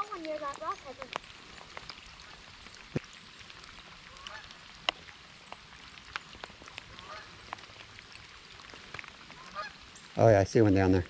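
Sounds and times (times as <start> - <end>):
rain hissing on water: 0.0 - 11.0
raindrops tapping: 0.0 - 11.0.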